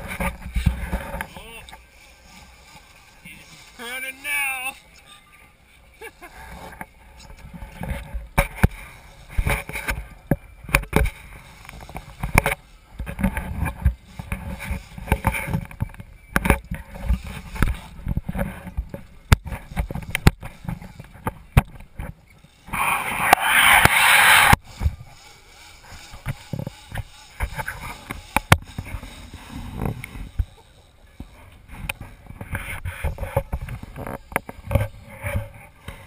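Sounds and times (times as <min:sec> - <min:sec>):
loud rushing wash: 0:22.7 - 0:24.6.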